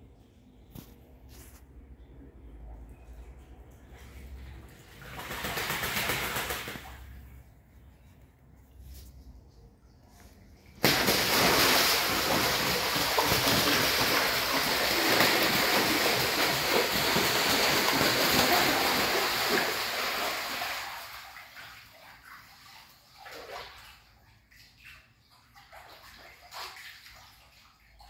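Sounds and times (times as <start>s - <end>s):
duck splashing in water: 3.9s - 7.4s, 10.8s - 24.0s.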